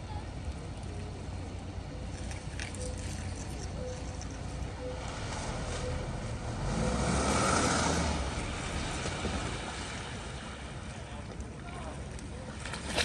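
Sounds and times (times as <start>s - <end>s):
vehicle passing: 2.9s - 11.0s.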